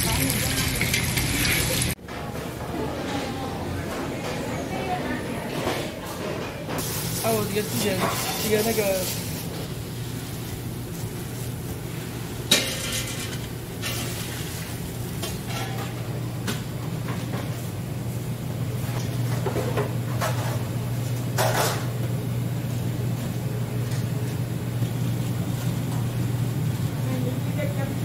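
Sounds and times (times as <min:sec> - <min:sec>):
water at a rolling boil: 0:00.0 - 0:02.0, 0:06.8 - 0:28.0
metal cookware clanking: 0:12.5 - 0:14.1.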